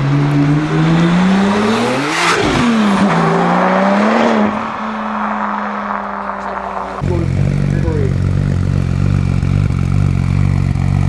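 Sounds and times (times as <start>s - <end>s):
sports car passing at speed: 0.0s - 7.7s.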